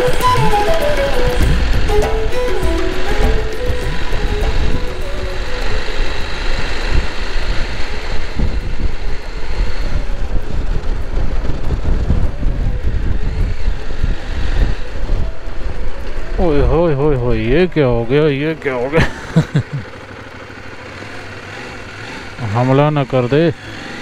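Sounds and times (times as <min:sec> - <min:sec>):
wind buffeting microphone: 0:00.0 - 0:18.5
motorcycle engine rumble: 0:00.0 - 0:24.0.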